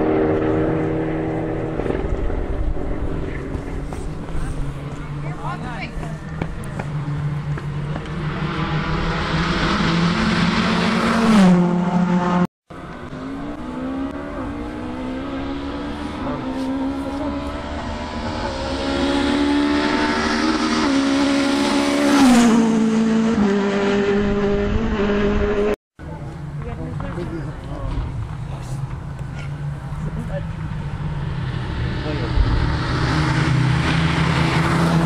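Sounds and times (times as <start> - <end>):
rally car engine passing: 0.0 - 35.0.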